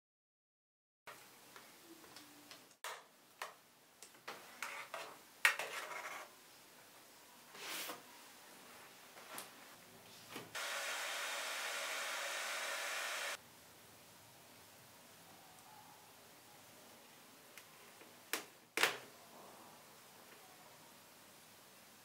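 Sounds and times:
hair dryer blowing: 10.6 - 13.4.

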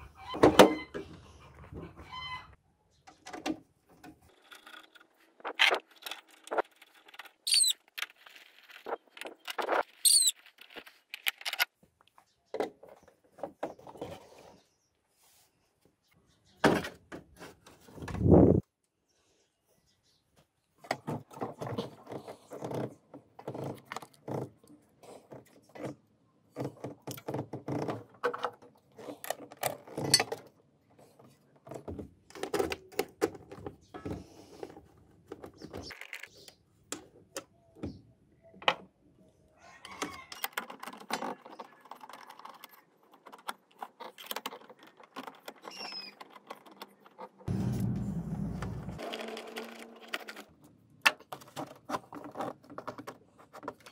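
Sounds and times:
plastic parts clicking and rattling: 3.1 - 11.8, 20.9 - 37.6, 39.9 - 47.5, 49.0 - 53.9.

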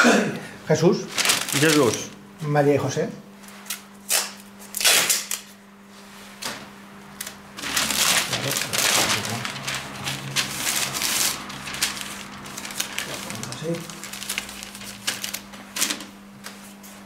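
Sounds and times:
masking paper crinkling and rustling: 1.0 - 2.2, 7.2 - 17.0.

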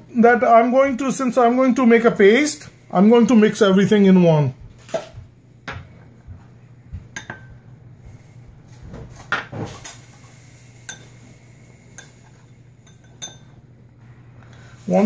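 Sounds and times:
glass bowls and spoon clinking: 7.2 - 7.6, 10.9 - 11.2, 12.0 - 13.6.

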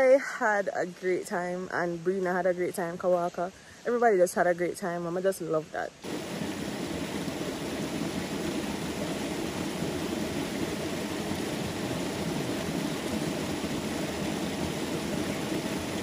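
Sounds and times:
waterfall pouring into pool: 6.0 - 16.0.

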